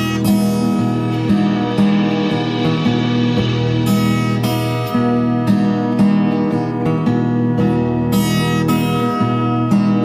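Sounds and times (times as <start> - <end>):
slow instrumental melody: 0.0 - 10.0.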